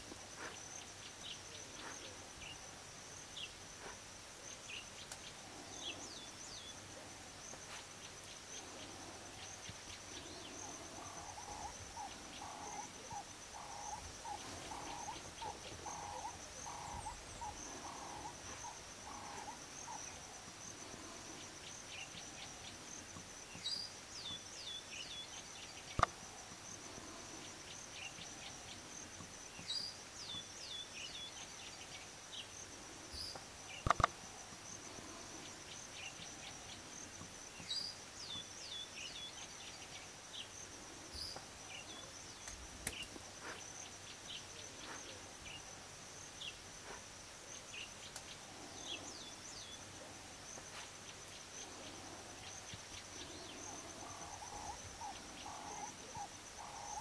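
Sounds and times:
high insect drone: 0:00.0 - 0:57.0
sharp clicks: 0:33.8 - 0:34.2.

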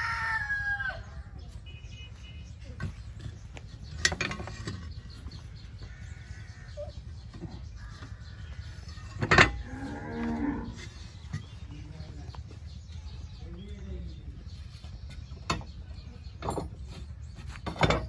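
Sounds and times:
cattle mooing: 0:09.6 - 0:10.8.

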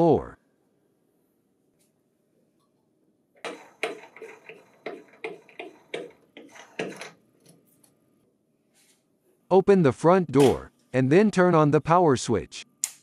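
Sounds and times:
screws ticking as turned by hand: 0:03.5 - 0:07.0.

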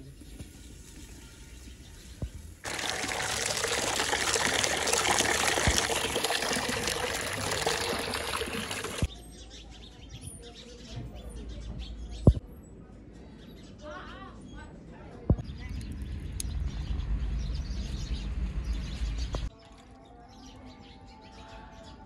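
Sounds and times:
water gushing into plastic tub: 0:02.6 - 0:09.1.

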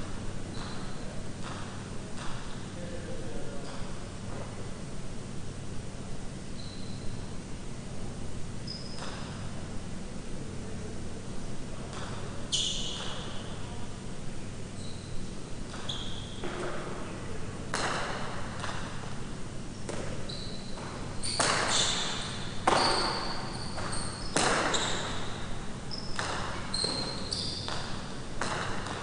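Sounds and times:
shoes squeaking on court: 0:00.5 - 0:02.8, 0:03.5 - 0:04.6, 0:06.5 - 0:07.4, 0:08.6 - 0:09.8, 0:11.9 - 0:13.6, 0:14.7 - 0:17.0, 0:19.8 - 0:29.0.

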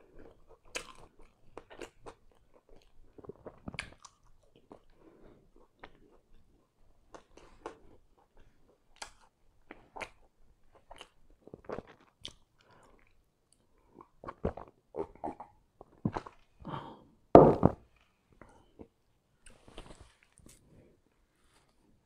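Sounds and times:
man chewing food: 0:00.0 - 0:16.5.

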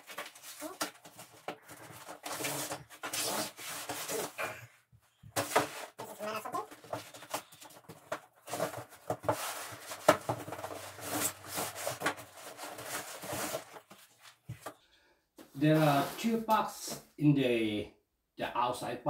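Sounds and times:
cardboard boxes scraping and sliding: 0:01.9 - 0:04.4, 0:08.4 - 0:14.4, 0:15.6 - 0:16.5.

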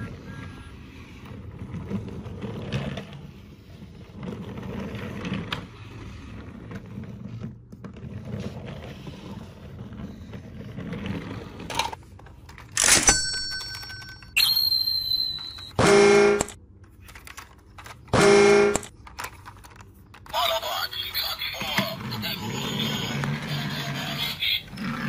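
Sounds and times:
toys clattering: 0:11.7 - 0:14.5, 0:16.4 - 0:18.1, 0:18.8 - 0:21.9.

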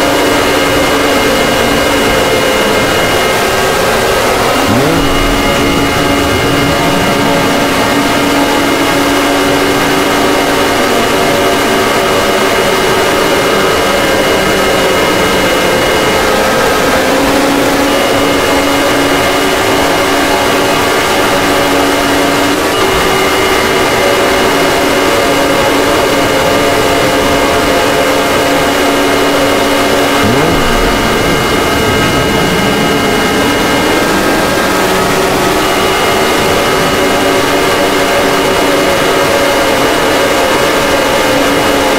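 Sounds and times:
electronic alert alarm drone: 0:00.1 - 0:12.2, 0:26.0 - 0:36.9
low swooping pitch: 0:01.6 - 0:10.9, 0:26.9 - 0:36.9.

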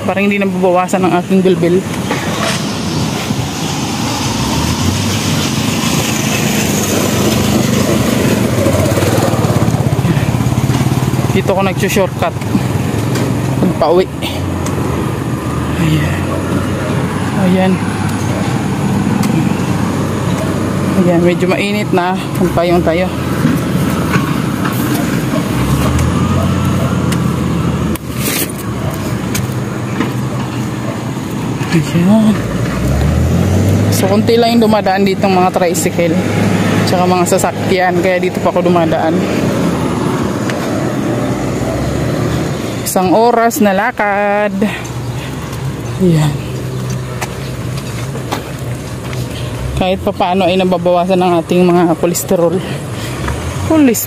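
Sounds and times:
small motorcycle engine passing: 0:02.0 - 0:29.0, 0:31.5 - 0:43.3.

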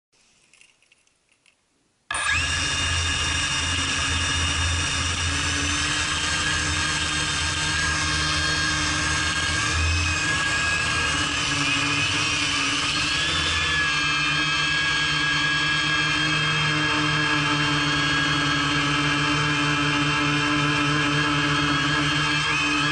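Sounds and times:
quadcopter motors whining: 0:02.1 - 0:22.9.

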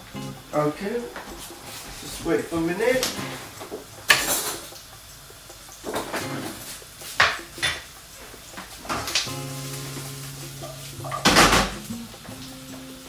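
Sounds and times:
pans and utensils clinking: 0:00.1 - 0:13.0.

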